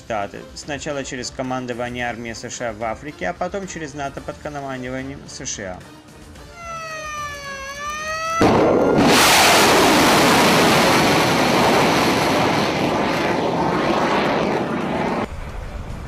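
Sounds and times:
rocket booster roaring: 7.2 - 15.3.

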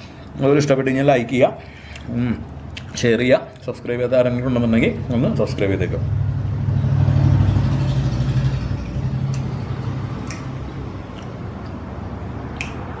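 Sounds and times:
low engine hum: 4.1 - 13.0.

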